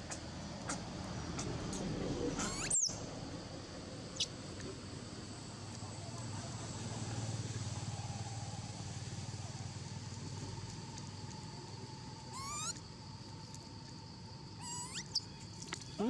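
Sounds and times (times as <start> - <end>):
insects droning: 0.0 - 16.0
macaque squeaky calls: 2.4 - 3.0, 12.3 - 12.8, 14.6 - 15.2.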